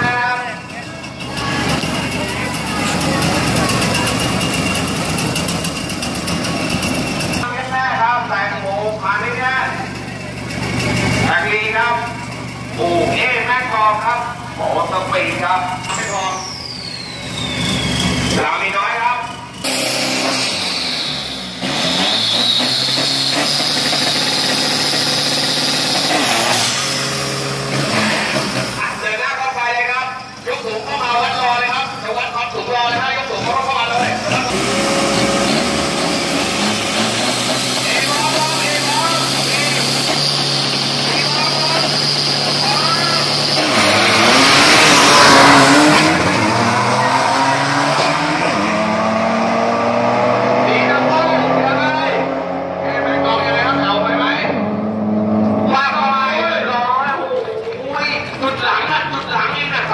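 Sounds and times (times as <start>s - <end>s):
truck engines running loudly: 0.0s - 59.9s.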